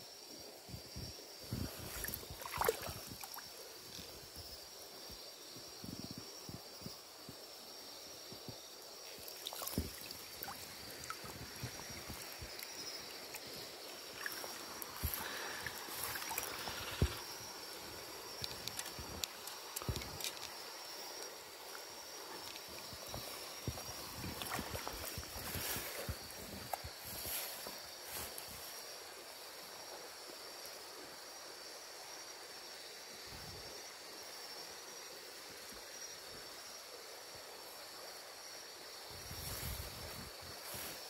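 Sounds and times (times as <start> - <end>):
water sloshing and splashing: 1.6 - 3.4, 9.2 - 20.5, 22.4 - 26.1.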